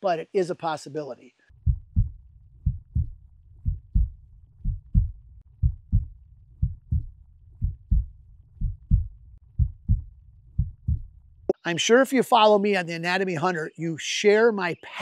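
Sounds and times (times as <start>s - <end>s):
heartbeat thumps: 1.6s - 11.2s
low steady hum: 1.6s - 11.5s.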